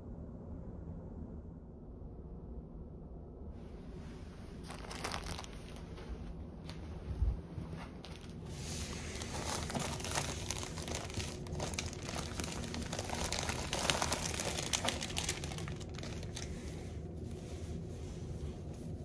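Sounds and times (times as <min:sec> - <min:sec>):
wrapping crinkling and rustling: 0:04.6 - 0:06.9, 0:07.6 - 0:19.0.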